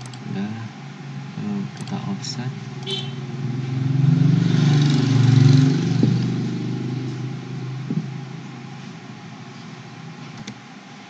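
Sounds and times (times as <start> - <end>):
vehicle engine droning past: 2.5 - 10.2.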